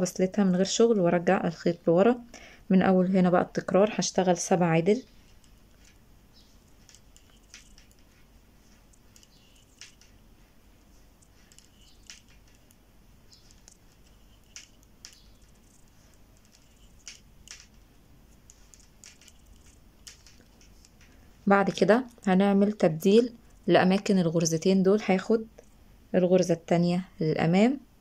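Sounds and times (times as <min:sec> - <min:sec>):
metal knitting needles clicking: 0:06.6 - 0:10.2, 0:11.2 - 0:21.2.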